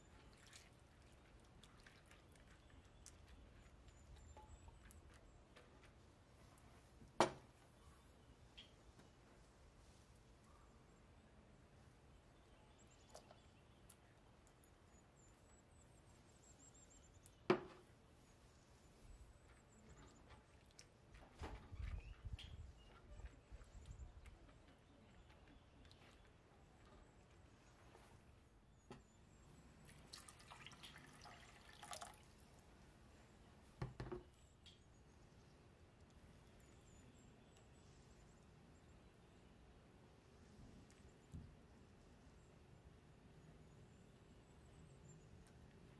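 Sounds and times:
liquid dripping and sloshing: 0.0 - 5.2, 29.8 - 32.6.

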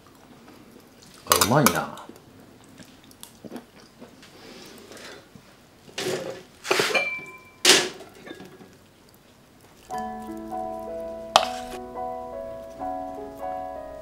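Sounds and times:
crockery clinking: 6.7 - 8.7.

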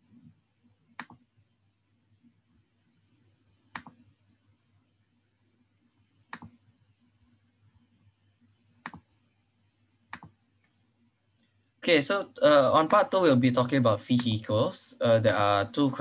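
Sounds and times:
low steady hum: 0.0 - 16.0
computer clicks: 0.9 - 1.3, 3.7 - 4.0, 6.3 - 6.6, 8.8 - 9.1, 10.1 - 10.8.

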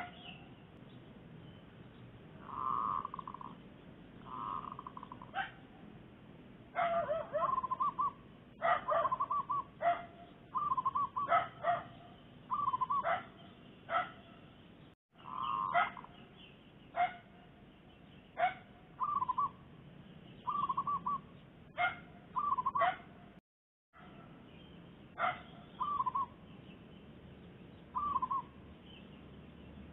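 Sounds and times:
dove cooing: 2.4 - 3.6, 4.2 - 5.5, 6.8 - 11.8, 12.5 - 13.2, 19.0 - 19.6, 20.5 - 21.2, 22.4 - 23.0, 25.2 - 26.3, 28.0 - 28.5
dog barking: 5.3 - 5.6, 6.8 - 7.7, 8.6 - 10.3, 11.2 - 12.1, 13.0 - 14.3, 15.7 - 16.1, 17.0 - 17.3, 18.4 - 18.7, 21.7 - 23.2, 25.2 - 25.6.

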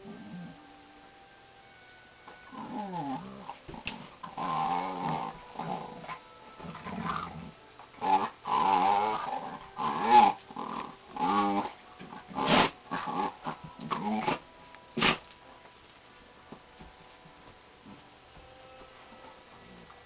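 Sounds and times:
dogs growling while playing: 2.5 - 14.5.

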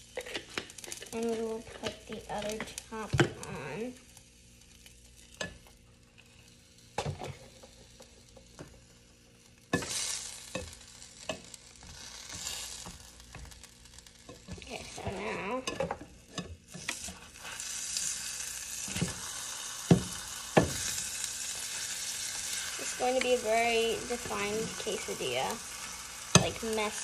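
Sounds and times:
food sizzling in skillet: 0.0 - 27.0
spatula knocking pan: 18.9 - 21.0.

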